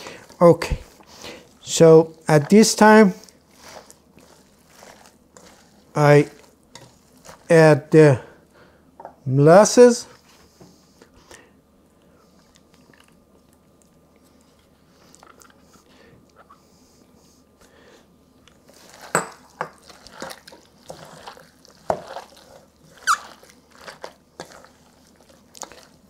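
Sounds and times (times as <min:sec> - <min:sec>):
wet squelching of hands mixing: 0:00.0 - 0:08.6, 0:12.0 - 0:16.0, 0:18.4 - 0:26.0.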